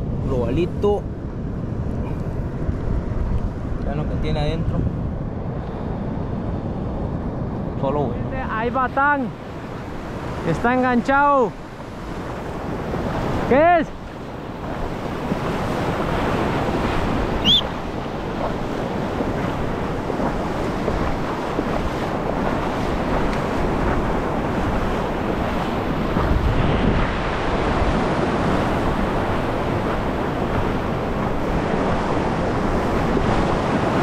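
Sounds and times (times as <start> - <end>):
surf washing and breaking: 0.0 - 34.0
wind on microphone: 0.0 - 34.0
short high chirp: 17.4 - 17.7.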